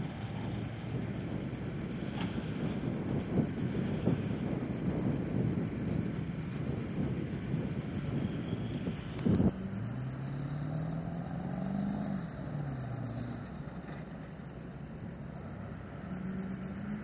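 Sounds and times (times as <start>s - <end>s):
truck engine revving: 7.5s - 14.1s.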